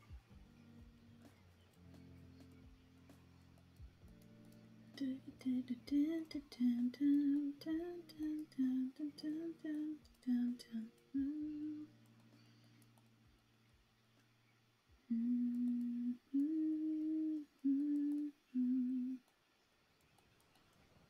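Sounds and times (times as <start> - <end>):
faint background music: 0.0 - 21.0
woman humming a tune: 5.0 - 12.0, 15.1 - 19.2.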